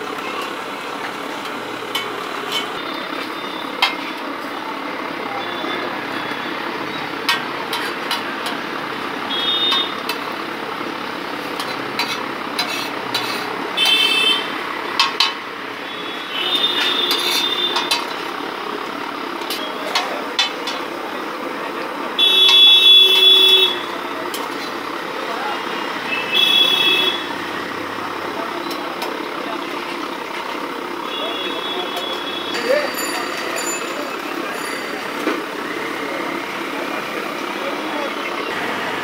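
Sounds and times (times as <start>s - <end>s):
street traffic: 0.0s - 39.0s
vehicle horns: 9.3s - 10.1s, 12.7s - 14.6s, 15.8s - 18.0s, 22.1s - 24.0s, 25.7s - 27.6s, 31.0s - 33.8s
metal spatula scraping griddle: 11.6s - 13.6s, 16.8s - 18.0s.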